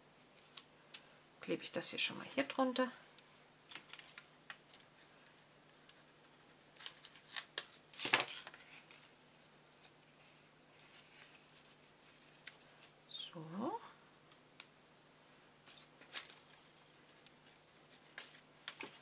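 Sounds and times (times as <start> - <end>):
paper pieces clicking and rustling: 3.7 - 6.2, 6.8 - 9.1.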